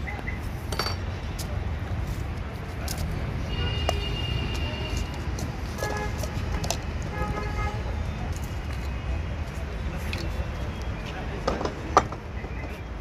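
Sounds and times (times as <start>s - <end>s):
road traffic: 0.0s - 13.0s
car horns honking: 5.8s - 7.9s.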